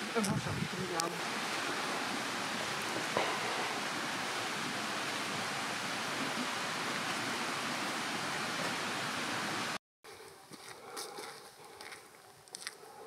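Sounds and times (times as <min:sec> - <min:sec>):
forest stream rushing: 0:00.0 - 0:09.8.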